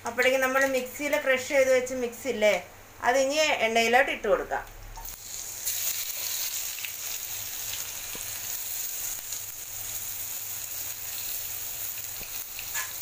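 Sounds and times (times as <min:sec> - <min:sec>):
spices sizzling in hot oil: 0:05.0 - 0:13.0.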